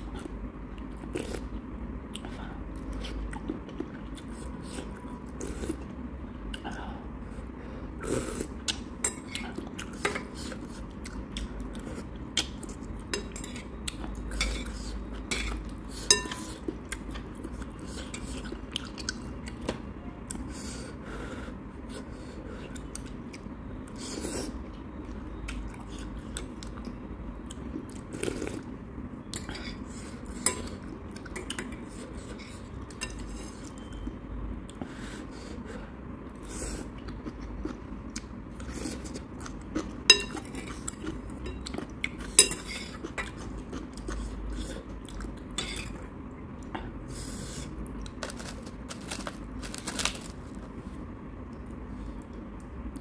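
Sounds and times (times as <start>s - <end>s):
metal utensils clinking on bowl: 41.4s - 43.4s.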